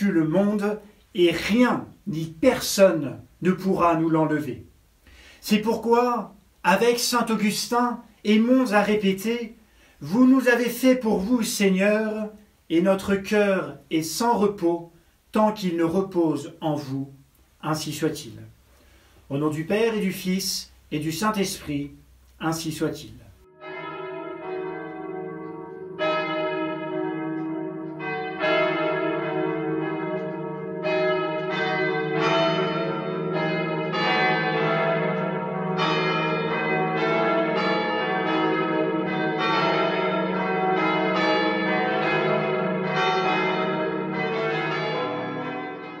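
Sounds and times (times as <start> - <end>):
church bells ringing: 0.0 - 4.4, 6.7 - 12.4, 22.4 - 46.0.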